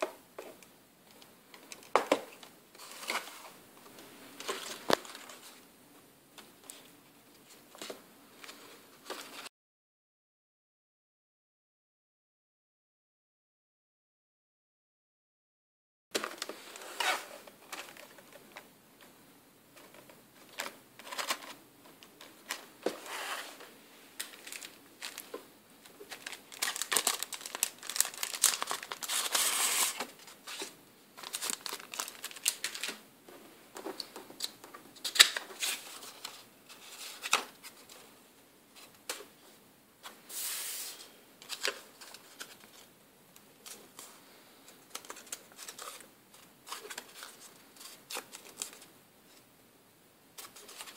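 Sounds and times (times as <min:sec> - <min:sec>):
paper and plastic bag rustling: 0:04.3 - 0:05.6, 0:22.2 - 0:33.0.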